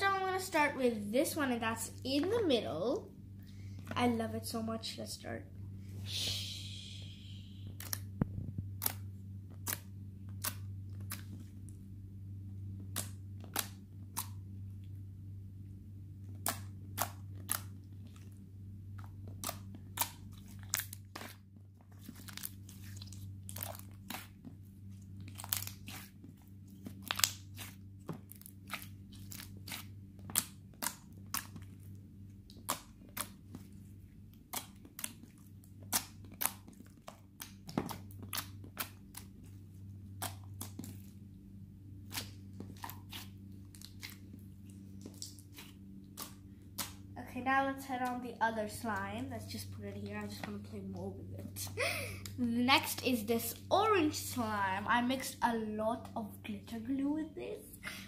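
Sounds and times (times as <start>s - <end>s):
steady low hum: 0.0s - 58.0s
slime squishing with wet clicks: 7.6s - 11.8s, 12.8s - 14.9s, 16.2s - 41.4s, 42.0s - 47.2s.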